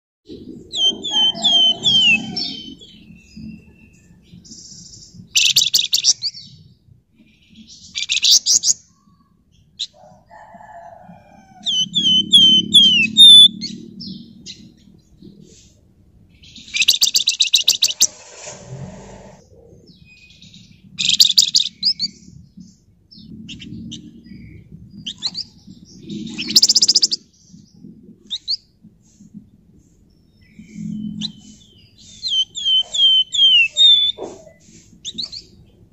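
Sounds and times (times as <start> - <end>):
bird downslurred whistled notes: 11.7 - 13.6, 30.8 - 35.3
songbird rattling trills: 23.5 - 27.3, 29.8 - 35.6.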